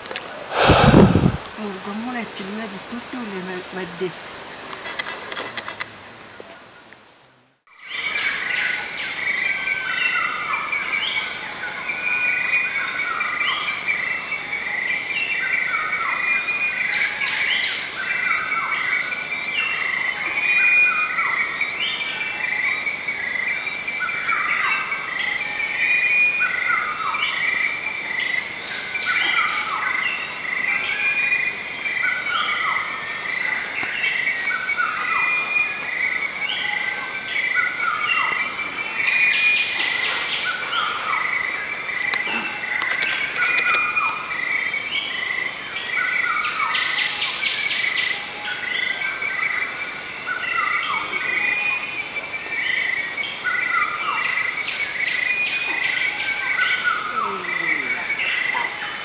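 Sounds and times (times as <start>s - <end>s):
insects droning high-pitched: 0.0s - 59.0s
short falling whistled calls: 0.5s - 1.7s.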